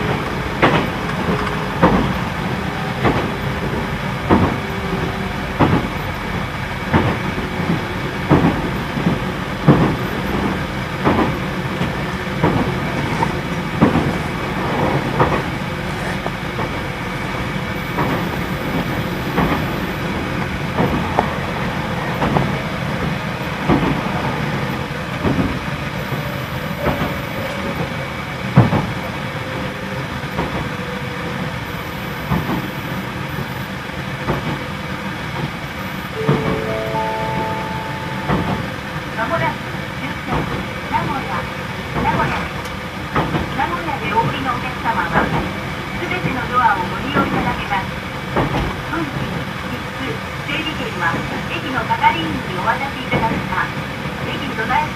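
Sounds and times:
steady train running noise: 0.0s - 54.9s
train wheels knocking over track joints: 5.6s - 16.8s.

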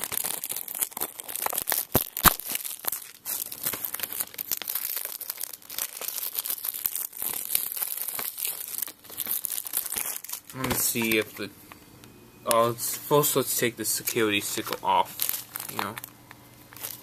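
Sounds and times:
plastic wrap crinkling and tearing: 0.0s - 11.5s, 13.9s - 17.0s.

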